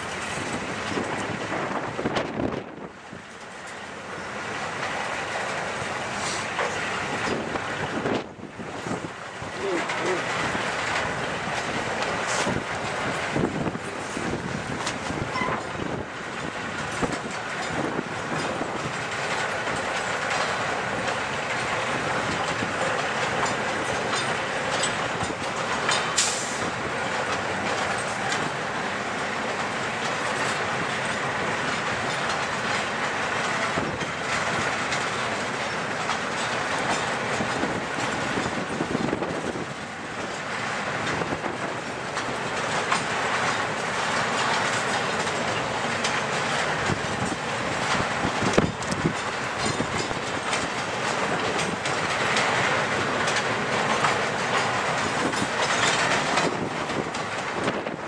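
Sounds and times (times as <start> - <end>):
clickety-clack over rail joints: 0.0 - 58.0
train wheels rumbling: 0.0 - 58.0.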